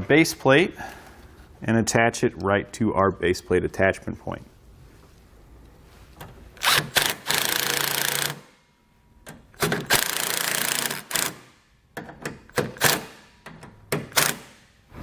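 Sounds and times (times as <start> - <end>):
cordless drill driving screws: 6.6 - 8.4, 9.8 - 11.4.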